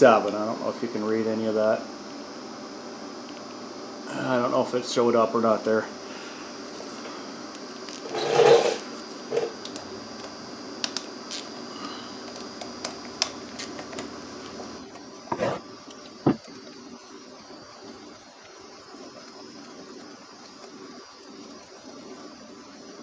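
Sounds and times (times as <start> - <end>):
steady background hum: 0.0 - 23.0.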